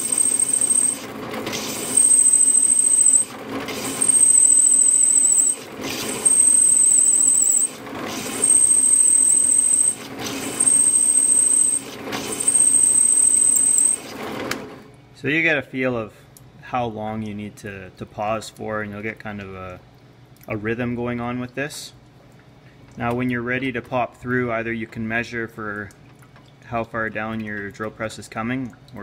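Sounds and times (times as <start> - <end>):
drill bit squealing in stone: 0.0 - 14.2
drill bit spinning: 0.0 - 14.6.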